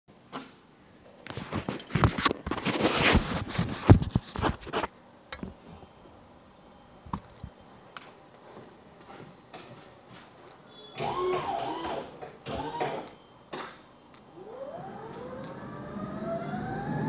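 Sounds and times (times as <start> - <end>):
rustling: 1.2 - 5.8.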